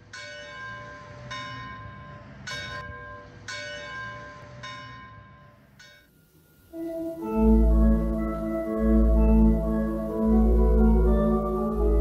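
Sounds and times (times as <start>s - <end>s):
church bell tolling: 0.0s - 6.1s.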